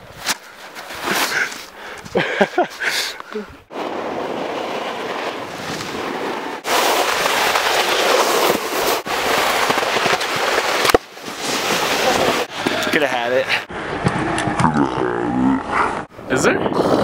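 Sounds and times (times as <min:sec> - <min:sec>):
snowboard sliding over snow: 0:03.7 - 0:13.7
wind on microphone: 0:15.6 - 0:17.0.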